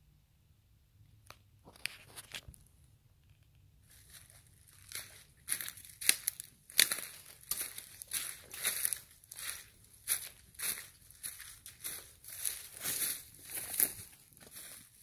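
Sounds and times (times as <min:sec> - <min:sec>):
footsteps crunching dry leaves: 0:03.9 - 0:15.0.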